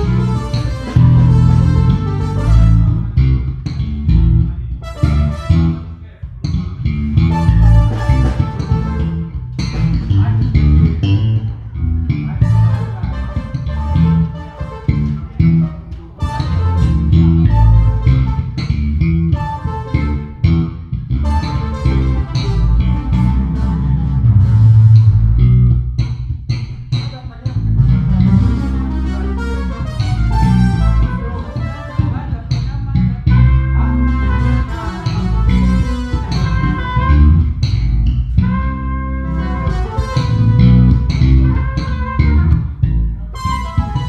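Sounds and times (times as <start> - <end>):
deep electric bass line: 0.0 - 44.0
keyboard: 0.0 - 44.0
small live band playing: 0.0 - 44.0.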